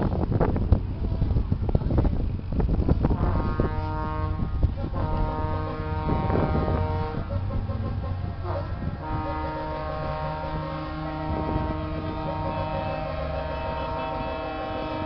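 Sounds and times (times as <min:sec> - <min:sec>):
low steady rumble: 0:00.0 - 0:15.0
wind buffeting microphone: 0:00.0 - 0:15.0
horn playing held notes: 0:03.2 - 0:07.3, 0:08.4 - 0:15.0.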